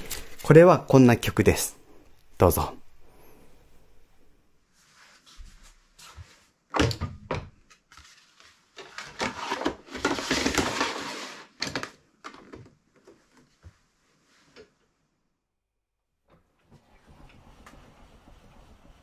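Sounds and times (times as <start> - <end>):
cardboard scraping over wood: 9.0 - 11.6.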